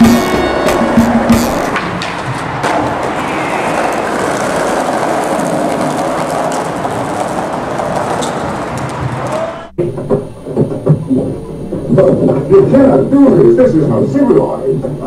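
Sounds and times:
skateboard wheels on concrete: 0.0s - 10.8s
skateboard clack: 0.0s - 11.3s.

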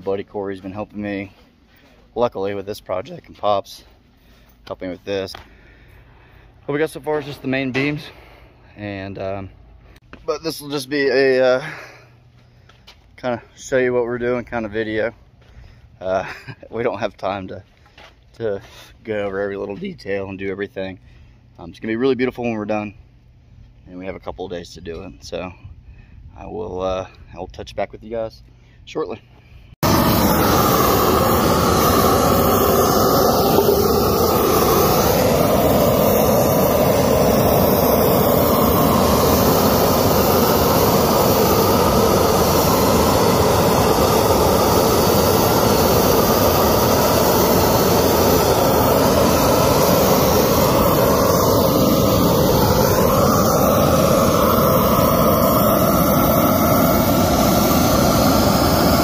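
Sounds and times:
torch flame roaring: 29.8s - 59.0s.

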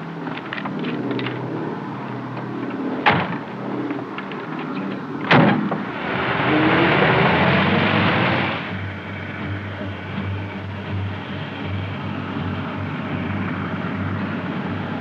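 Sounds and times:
car engine idling and revving: 0.0s - 15.0s
car doors slamming: 3.0s - 3.5s.

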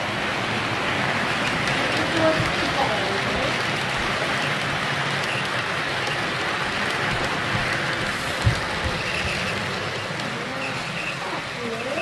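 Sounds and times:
model train wheels rattling: 0.1s - 12.0s.

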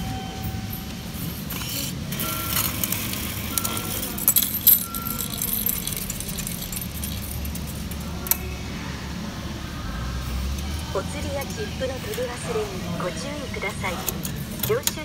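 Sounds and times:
coins clinking into machine: 1.4s - 8.5s, 13.8s - 15.0s.

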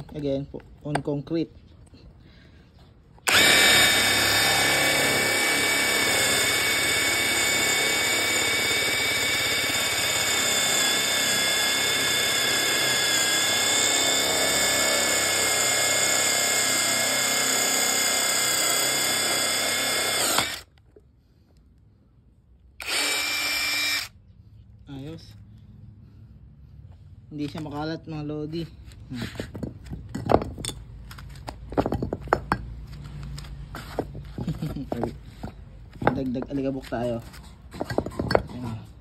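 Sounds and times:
drill boring into concrete: 3.2s - 20.8s, 22.8s - 24.2s.

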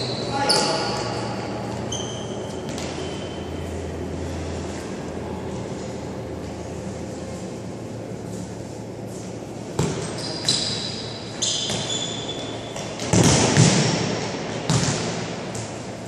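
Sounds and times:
shoes squeaking on floor: 0.0s - 3.7s, 9.8s - 13.0s
ball kicked and bouncing: 9.7s - 10.8s, 11.6s - 15.6s.

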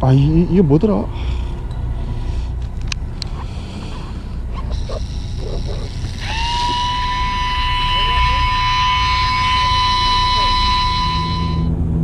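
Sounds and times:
low rumble: 0.0s - 12.0s
fishing reel motor whine: 3.1s - 11.8s.

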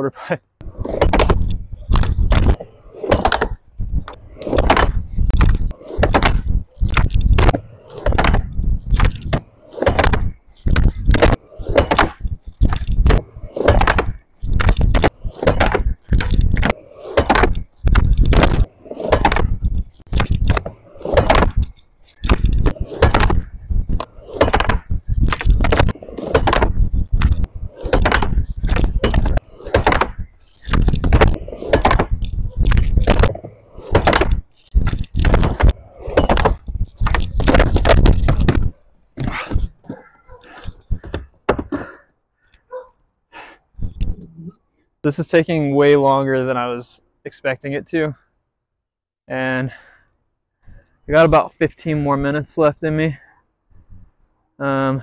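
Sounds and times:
skateboard clacking and slapping ramp: 0.6s - 42.0s
skateboard wheels rolling on plywood: 0.6s - 42.1s.

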